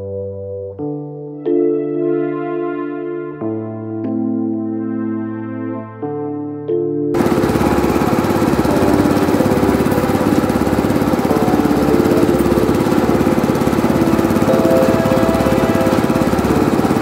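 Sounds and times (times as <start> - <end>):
generator engine running: 7.2 - 17.0.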